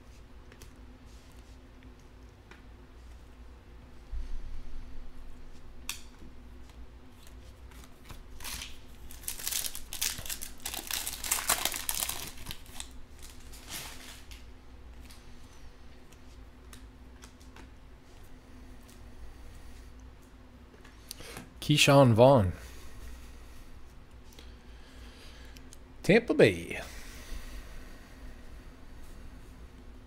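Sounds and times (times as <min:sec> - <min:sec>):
foil wrapper tearing and crinkling: 0:08.3 - 0:14.4.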